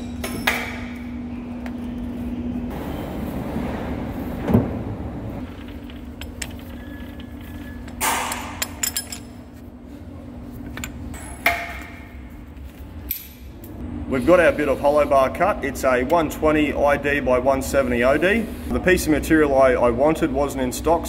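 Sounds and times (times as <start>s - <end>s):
low machine hum: 0.0s - 21.0s
metallic clanks and clicks: 5.5s - 9.5s.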